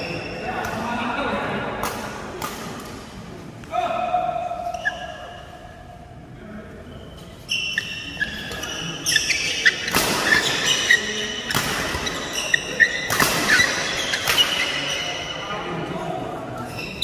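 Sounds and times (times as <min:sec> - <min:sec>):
rackets hitting shuttlecock: 0:01.8 - 0:03.7, 0:07.8 - 0:15.2
shoes squeaking on court floor: 0:04.6 - 0:05.6, 0:06.8 - 0:15.4, 0:16.6 - 0:17.0.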